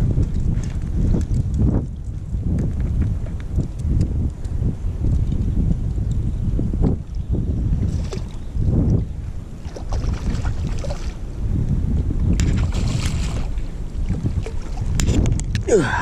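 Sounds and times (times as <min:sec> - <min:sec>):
wind buffeting microphone: 0:00.0 - 0:16.0
fish thrashing and splashing: 0:09.6 - 0:11.2, 0:12.4 - 0:15.2.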